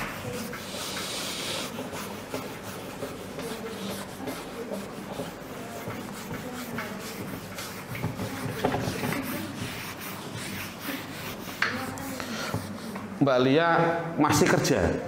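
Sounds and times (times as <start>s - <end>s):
eraser wiping whiteboard: 0.0s - 13.2s.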